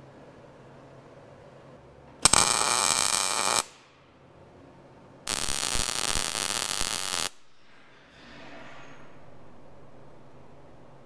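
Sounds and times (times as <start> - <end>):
welding arc buzzing: 2.2 - 3.8, 5.3 - 7.5.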